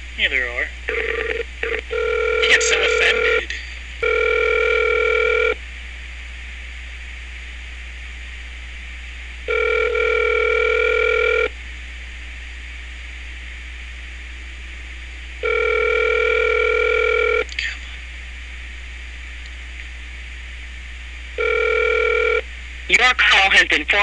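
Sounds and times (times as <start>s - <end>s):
telephone ringback tone: 0.9s - 5.6s, 9.5s - 11.5s, 15.4s - 17.4s, 21.4s - 22.4s.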